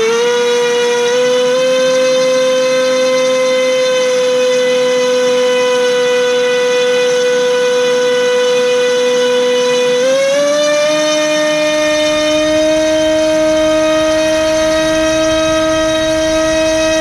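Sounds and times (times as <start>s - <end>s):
brushless motor whining: 0.0s - 17.0s.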